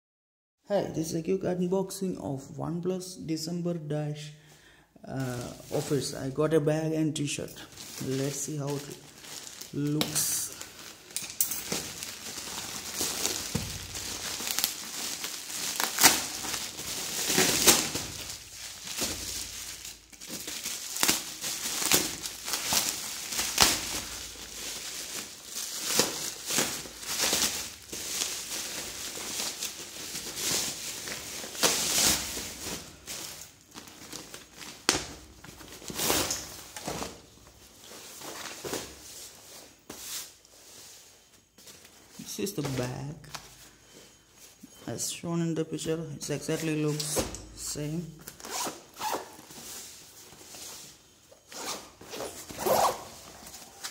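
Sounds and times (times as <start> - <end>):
plastic mailer crinkling: 7.2 - 39.2, 46.4 - 53.9.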